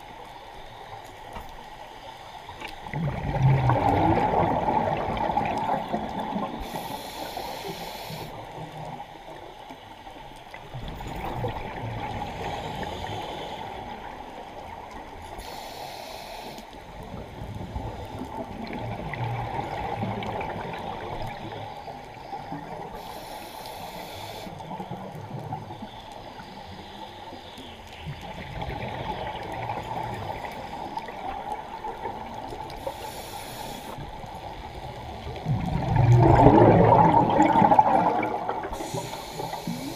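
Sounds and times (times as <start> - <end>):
underwater rushing: 0.0 - 39.9
bubbling of exhaled air: 2.8 - 7.0, 35.2 - 39.9
regulator inhalation hiss: 6.6 - 8.5, 15.4 - 16.8, 22.9 - 24.6, 32.7 - 34.1, 38.7 - 39.9.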